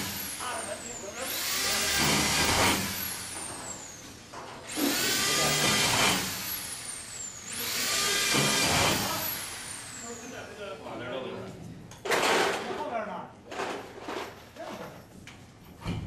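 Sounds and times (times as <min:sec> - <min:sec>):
electric drill boring into metal: 0:00.0 - 0:04.1, 0:04.7 - 0:10.4.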